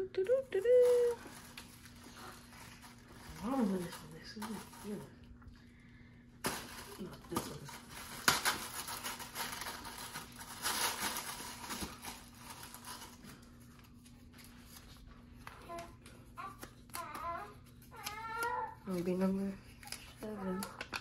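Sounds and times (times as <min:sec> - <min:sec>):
paper rustling and crinkling: 0:00.8 - 0:05.1, 0:06.4 - 0:21.0
tissue paper tearing: 0:06.4 - 0:13.2.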